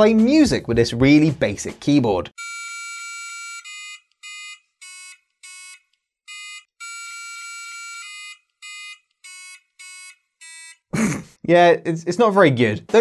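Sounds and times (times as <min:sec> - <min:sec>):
high electronic beeps tune: 0:06.8 - 0:10.8.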